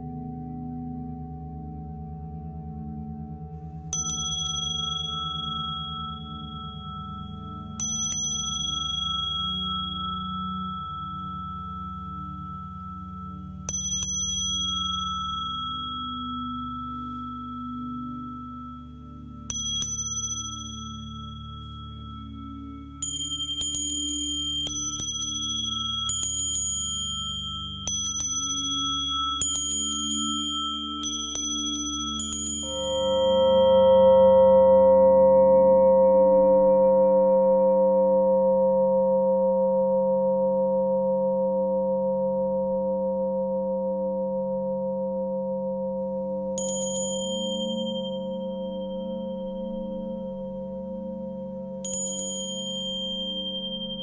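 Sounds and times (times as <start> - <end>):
low wavering drone: 0.0 - 54.0
small high-pitched bell strikes: 3.9 - 35.8, 46.2 - 54.0.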